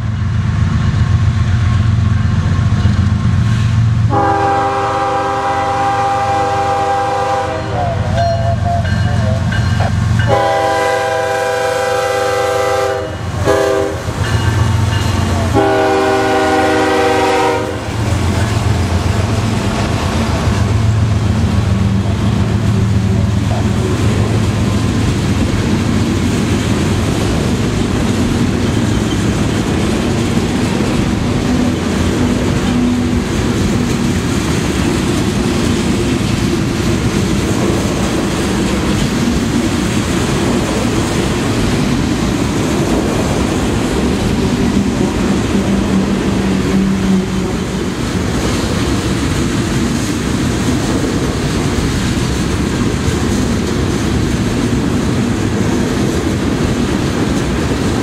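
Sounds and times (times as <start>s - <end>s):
train wheels rumbling on rail: 0.0s - 58.0s
train horn blasts: 4.1s - 14.4s, 15.3s - 18.1s.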